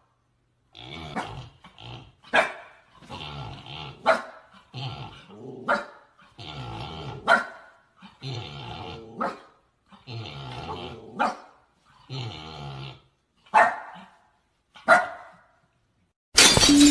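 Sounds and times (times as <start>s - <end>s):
dog growling: 0.7s - 7.4s, 8.0s - 11.3s, 11.9s - 13.2s
dog barking: 2.3s - 2.8s, 4.0s - 4.5s, 5.6s - 6.0s, 7.2s - 7.8s, 9.2s - 9.6s, 11.2s - 11.6s, 13.5s - 14.1s, 14.8s - 15.6s.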